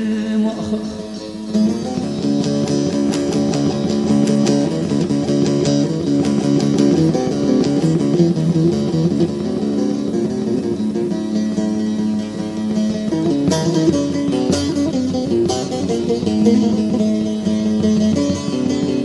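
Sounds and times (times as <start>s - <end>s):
low accompaniment: 0.0s - 19.0s
plucked string instruments melody: 0.0s - 19.0s.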